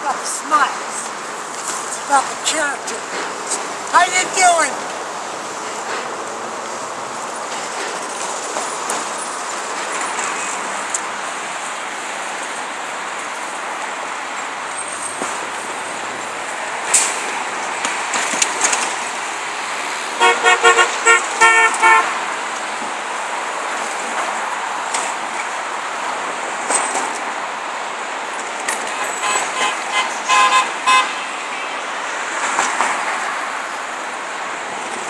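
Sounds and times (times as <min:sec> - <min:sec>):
traffic passing on road: 0:00.0 - 0:35.0
car horn short toots: 0:20.2 - 0:22.1, 0:28.9 - 0:31.2.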